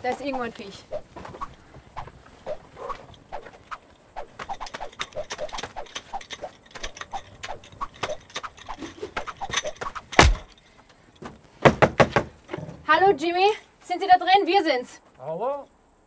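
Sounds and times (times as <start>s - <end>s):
small animal chirping calls: 0.0s - 10.6s.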